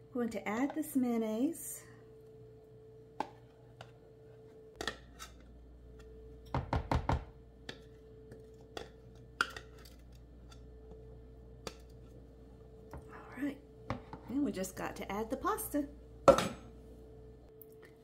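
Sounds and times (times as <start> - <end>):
faint steady hum: 0.0 - 18.0
spatula scraping and tapping a jar: 7.6 - 11.0.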